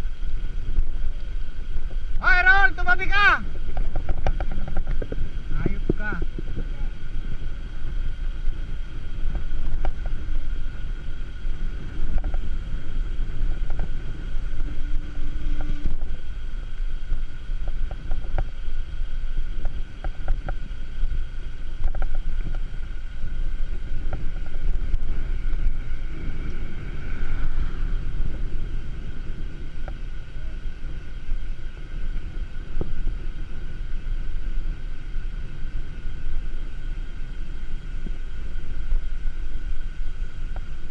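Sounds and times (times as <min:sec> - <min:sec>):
tyres rolling on asphalt: 0:00.0 - 0:40.9
wind rumble on microphone: 0:00.0 - 0:40.9
bike clicks and rattles: 0:03.6 - 0:19.0.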